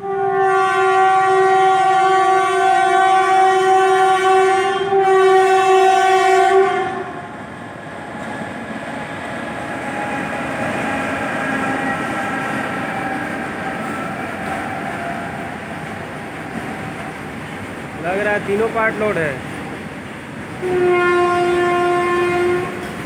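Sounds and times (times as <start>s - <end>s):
locomotive air horn: 0.0s - 7.3s, 20.6s - 22.9s
freight train wagons rumbling: 0.0s - 23.0s.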